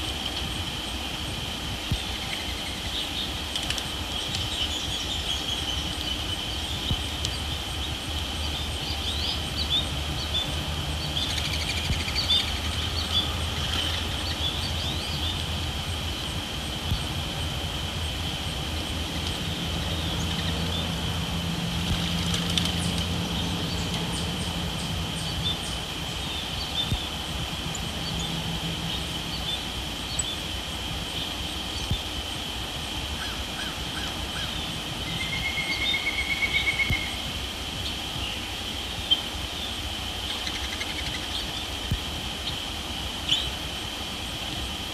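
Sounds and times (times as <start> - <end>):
low hum: 0.0 - 38.3
high insect drone: 0.0 - 44.9.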